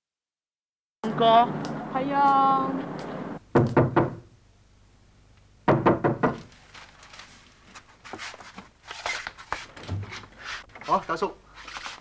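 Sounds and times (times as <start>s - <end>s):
knocking on wooden door: 3.5s - 4.3s, 5.6s - 6.5s
faint footsteps: 6.5s - 12.0s.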